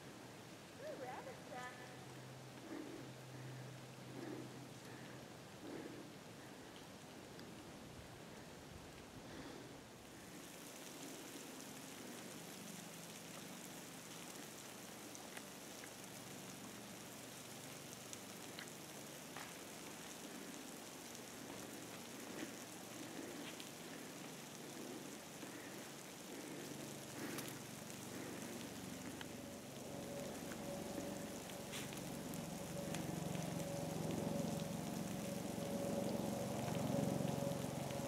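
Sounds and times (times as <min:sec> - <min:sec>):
dogs digging in snow: 0:30.0 - 0:32.2.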